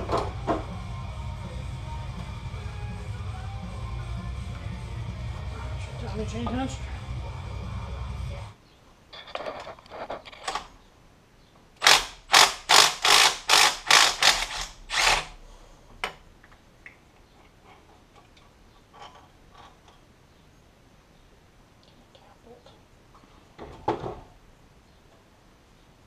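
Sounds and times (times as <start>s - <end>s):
ratchet wrench clicking: 11.8s - 15.3s.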